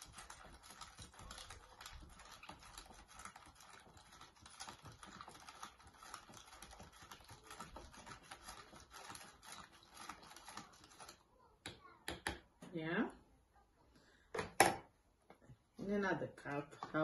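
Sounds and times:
spoon scraping plastic cup: 0.0 - 11.2.

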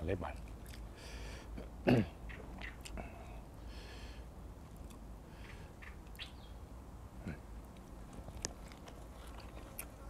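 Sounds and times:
low steady background noise: 0.0 - 10.0
faint bird chirp: 5.4 - 6.6.

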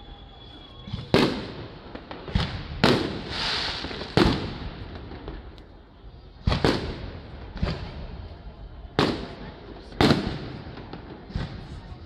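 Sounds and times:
fireworks bangs: 0.0 - 5.6, 6.4 - 12.0
fireworks hissing: 0.0 - 5.8.

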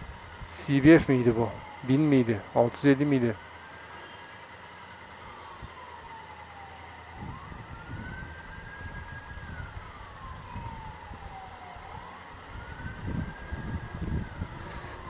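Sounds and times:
ambulance siren wailing: 0.0 - 15.0
traffic rumble: 0.0 - 15.0
wind: 0.0 - 15.0.

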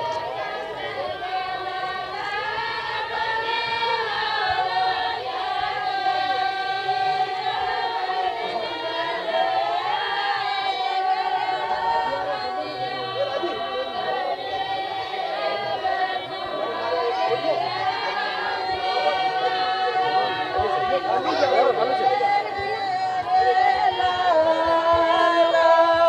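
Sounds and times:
women singing in unison: 0.0 - 26.0.

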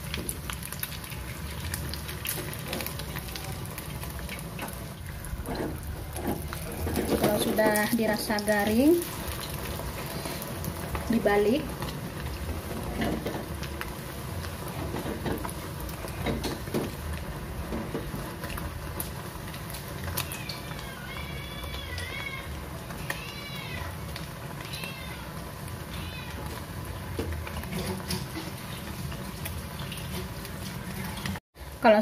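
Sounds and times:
omelet sizzling in hot oil: 0.0 - 32.0
cat meowing: 20.1 - 24.0, 24.6 - 26.6.

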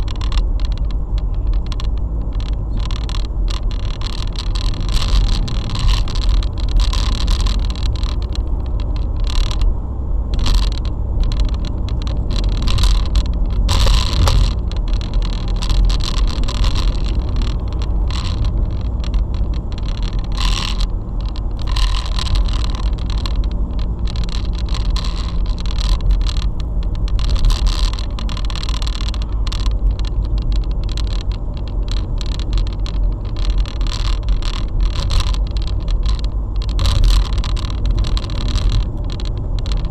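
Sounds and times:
car road and engine rumble: 0.0 - 39.9
irregular clicks and scrapes: 0.0 - 39.9.

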